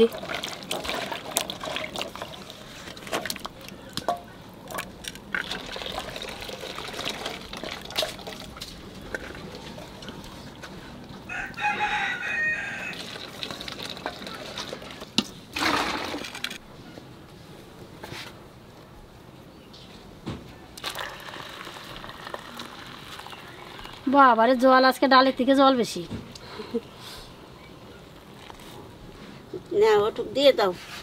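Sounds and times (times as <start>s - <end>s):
rooster crowing: 11.3s - 13.0s.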